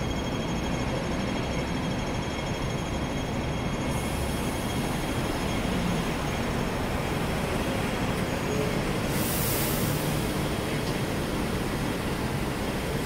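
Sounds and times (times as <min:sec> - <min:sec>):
bus driving past: 0:03.4 - 0:13.0
road traffic rumble: 0:03.9 - 0:13.0.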